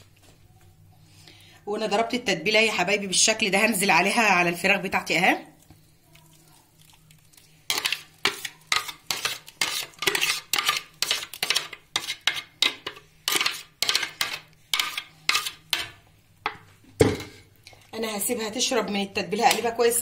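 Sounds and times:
wet squelches of marinated chicken: 5.4 - 10.5.

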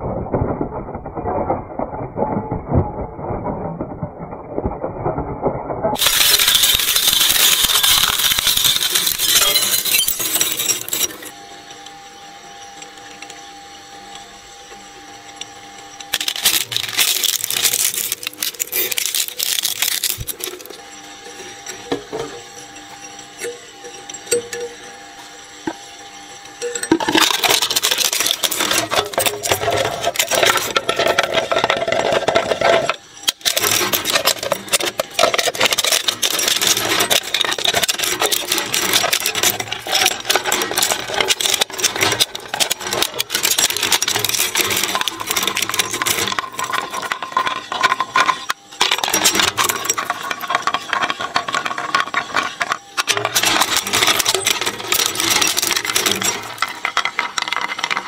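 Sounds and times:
shredder crunching and tearing: 5.9 - 11.3, 16.0 - 20.8, 26.9 - 58.0.

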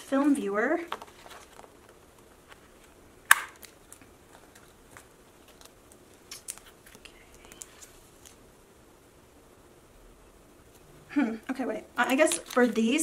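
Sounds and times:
plastic pages tapping and rustling: 0.3 - 2.9, 12.0 - 13.0.

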